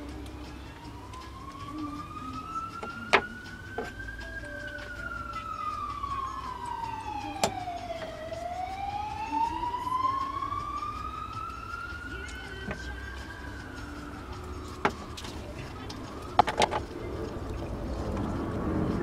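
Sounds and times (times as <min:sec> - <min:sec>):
emergency vehicle siren wailing: 0:00.0 - 0:19.0
items clicking on a workbench: 0:16.4 - 0:16.9.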